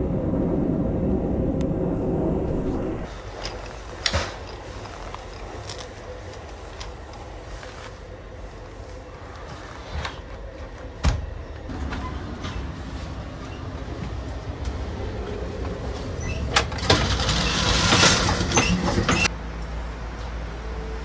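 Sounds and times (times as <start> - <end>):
train wheels rattling on rails: 3.0 - 19.3
sliding door clack: 15.7 - 19.3.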